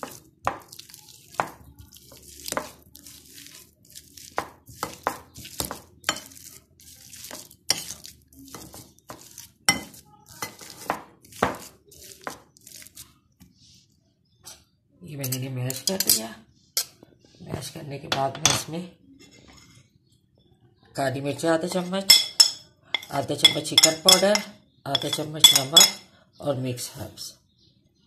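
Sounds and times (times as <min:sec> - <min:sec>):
masher clinking against glass bowl: 0:22.1 - 0:26.0.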